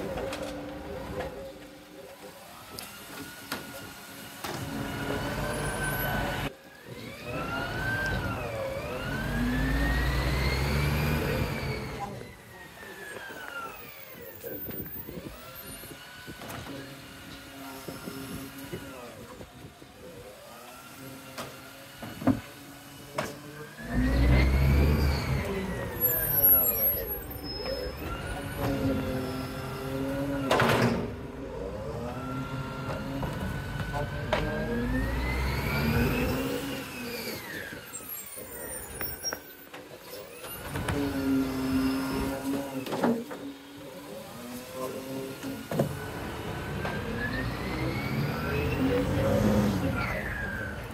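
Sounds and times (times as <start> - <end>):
truck diesel engine revving: 4.0 - 12.2, 22.5 - 39.3, 40.2 - 42.9, 43.6 - 50.9
hydraulic arm clunks: 30.0 - 31.4.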